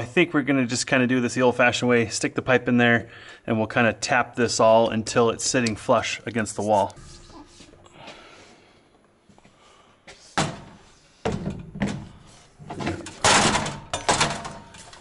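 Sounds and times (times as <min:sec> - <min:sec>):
ladder knocks: 0:11.3 - 0:14.7
metal ladder clattering: 0:12.7 - 0:15.0.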